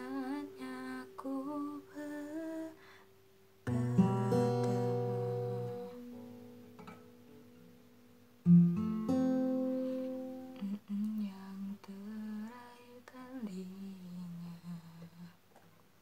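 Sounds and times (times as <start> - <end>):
woman singing softly: 0.0 - 3.1, 3.7 - 6.0, 10.4 - 15.5
acoustic guitar chord strummed: 3.6 - 10.7.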